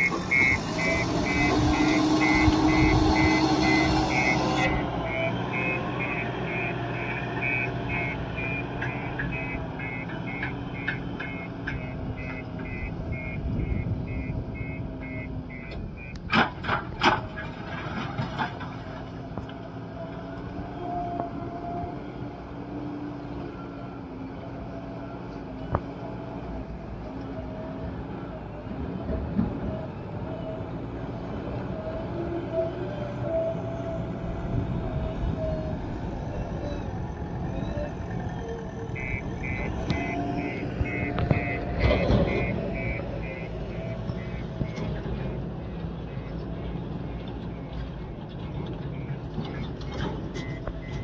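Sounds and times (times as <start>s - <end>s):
reversing alarm beeping: 0.0s - 16.3s, 38.6s - 51.0s
diesel engine running: 0.0s - 51.0s.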